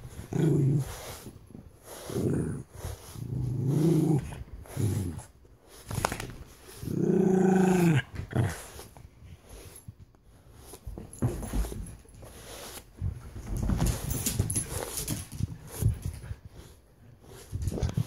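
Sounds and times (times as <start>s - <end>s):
small dog growling: 2.0s - 5.3s, 6.7s - 8.8s.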